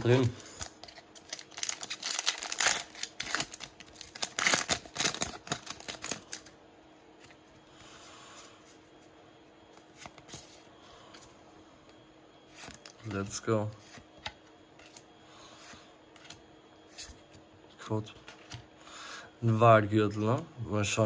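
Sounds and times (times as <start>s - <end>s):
foil wrapper crinkling: 0.0s - 6.5s.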